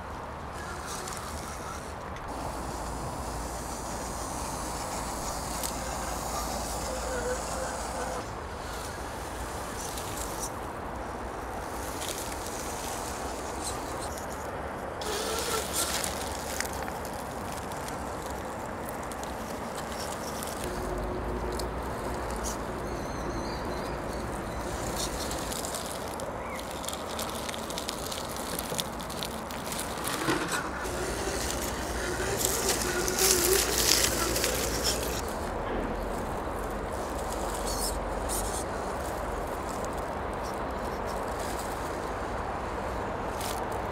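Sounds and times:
tyres scrabbling over rocks: 0.0 - 43.9
electric motor whirring: 15.0 - 16.7, 29.6 - 35.3.

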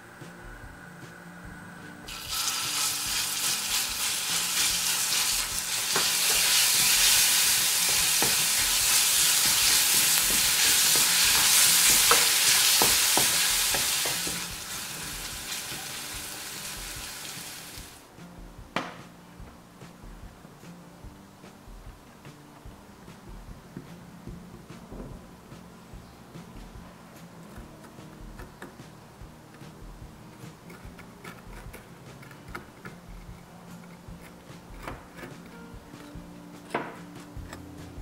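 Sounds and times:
garlic sizzling in oil: 2.1 - 18.0.

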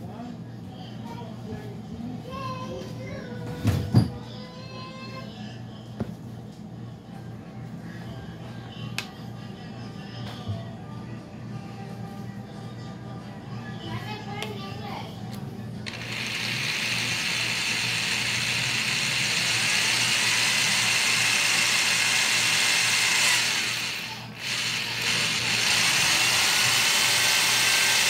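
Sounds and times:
electric drill whining: 15.8 - 28.0.

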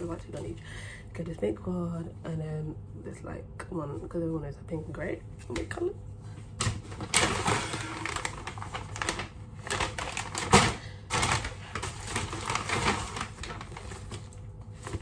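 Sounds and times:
shopping bags rustling and crinkling: 6.6 - 15.0.

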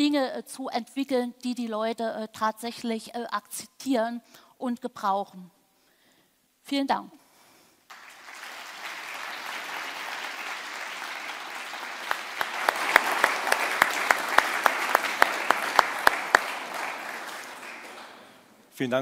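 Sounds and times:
loud single claps: 7.9 - 18.4
audience applauding: 7.9 - 18.6.

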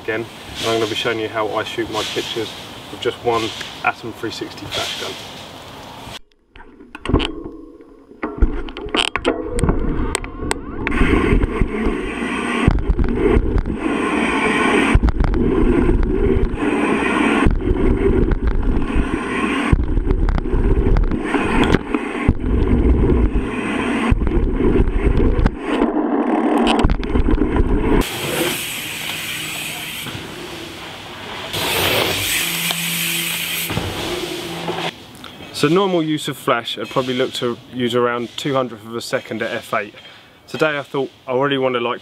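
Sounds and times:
bike knocking and rattling: 6.6 - 13.9, 14.9 - 25.6
wind buffeting on microphone: 8.3 - 28.1.

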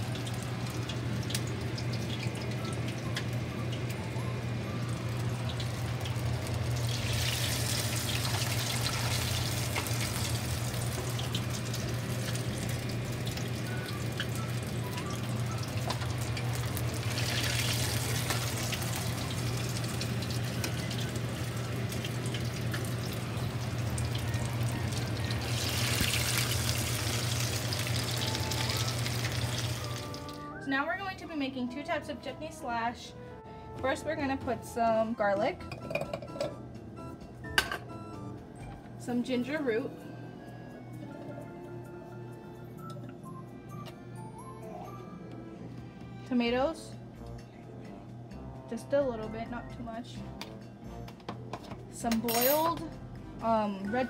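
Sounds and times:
food deep-frying in hot oil: 0.0 - 4.0, 4.8 - 30.4.

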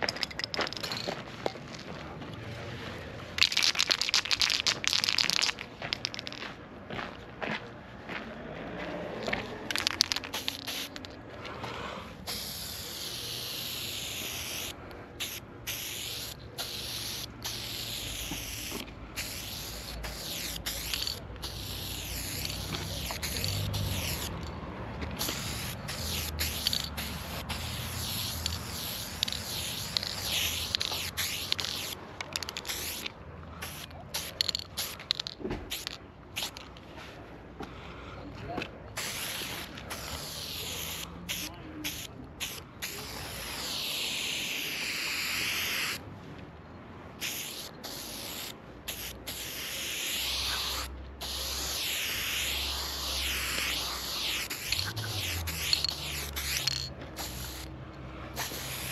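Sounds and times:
spray paint can hissing: 3.4 - 6.3, 9.7 - 11.2, 12.2 - 24.5, 25.1 - 36.8, 39.0 - 46.0, 47.2 - 57.7, 58.3 - 58.9
spray can clicks: 9.7 - 11.1.

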